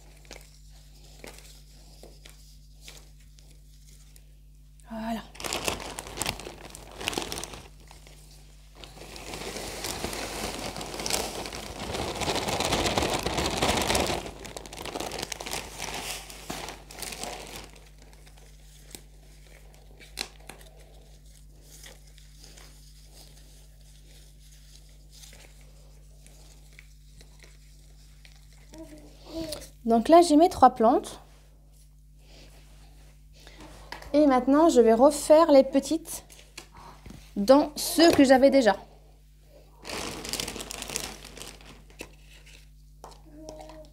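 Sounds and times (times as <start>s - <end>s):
plastic bag crinkling: 5.0s - 23.9s, 39.8s - 42.7s.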